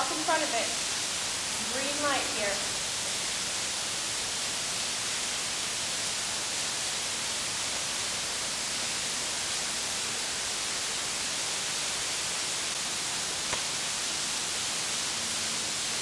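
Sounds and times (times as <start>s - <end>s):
recording noise hiss: 0.0s - 16.0s.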